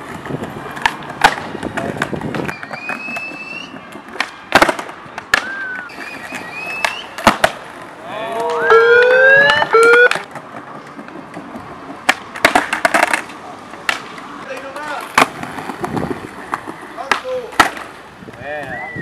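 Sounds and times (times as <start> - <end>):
skateboard clacks: 0.0 - 19.0
high wavering cry: 8.1 - 10.0.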